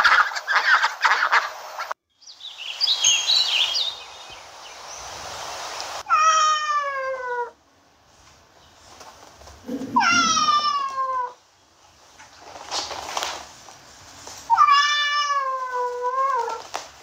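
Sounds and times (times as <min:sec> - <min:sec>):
cat meowing: 0:06.0 - 0:07.6, 0:09.7 - 0:11.4, 0:14.5 - 0:16.7.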